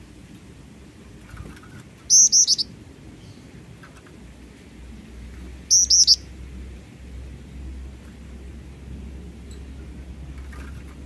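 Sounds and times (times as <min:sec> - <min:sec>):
bird calling sharp high notes: 0:05.7 - 0:06.2.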